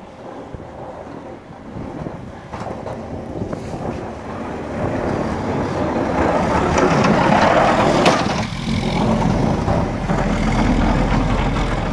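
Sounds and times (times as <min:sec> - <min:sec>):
plow blade pushing snow: 0:00.0 - 0:11.9
truck engine passing: 0:01.2 - 0:11.9.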